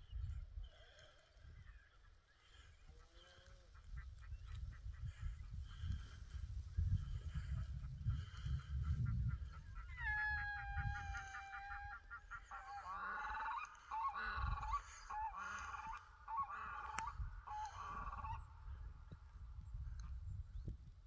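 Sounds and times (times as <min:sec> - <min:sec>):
wind rumble on microphone: 0:00.0 - 0:01.8, 0:03.2 - 0:12.3, 0:16.8 - 0:21.0
animal calls: 0:09.3 - 0:18.5.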